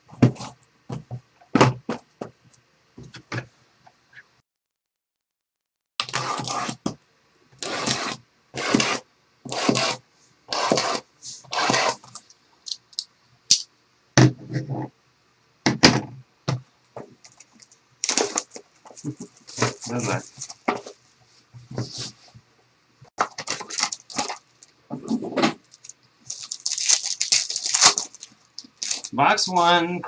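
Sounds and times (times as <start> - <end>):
plastic wrap crinkling: 17.2 - 21.0, 23.2 - 29.6.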